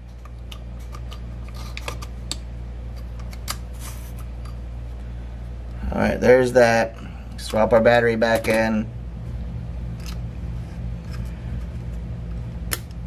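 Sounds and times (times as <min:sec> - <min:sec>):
steady low hum: 0:00.0 - 0:13.0
brushing scrape: 0:10.4 - 0:12.0.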